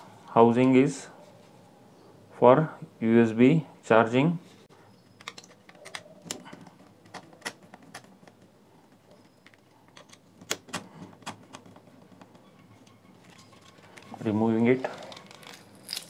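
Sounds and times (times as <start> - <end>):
plastic parts tapping: 5.0 - 12.5.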